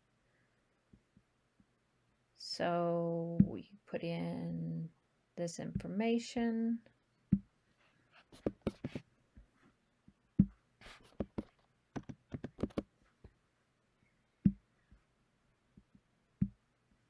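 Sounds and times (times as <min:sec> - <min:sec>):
keyboard keystrokes: 0:11.2 - 0:12.8.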